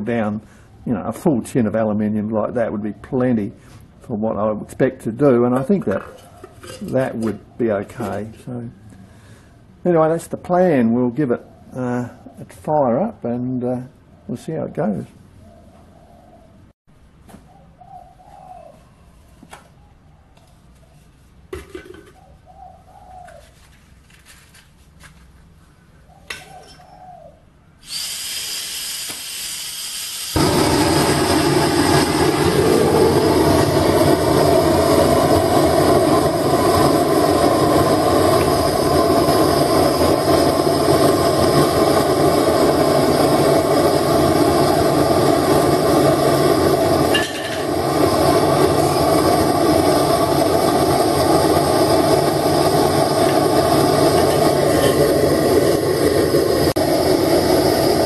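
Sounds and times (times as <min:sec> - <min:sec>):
dove cooing: 0:15.4 - 0:16.6, 0:17.5 - 0:19.2, 0:22.0 - 0:23.6, 0:26.1 - 0:27.5
gas torch hissing: 0:27.8 - 0:58.0
torch burning with steady rush: 0:27.8 - 0:58.0.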